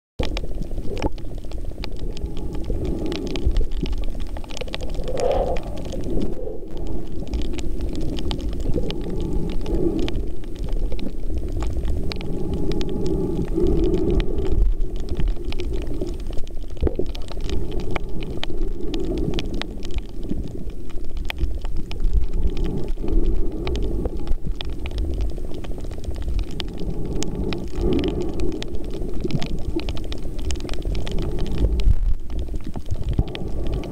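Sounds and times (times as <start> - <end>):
muffled underwater rumble: 0.2 - 33.9.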